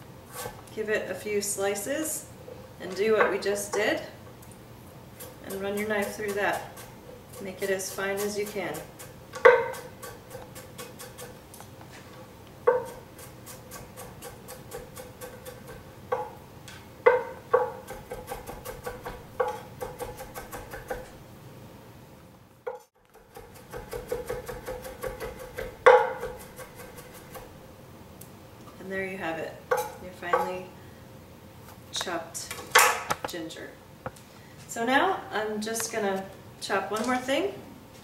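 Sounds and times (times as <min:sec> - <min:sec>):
knife mincing on wooden board: 0:05.2 - 0:11.5, 0:12.7 - 0:16.3, 0:17.1 - 0:21.2, 0:23.1 - 0:27.6.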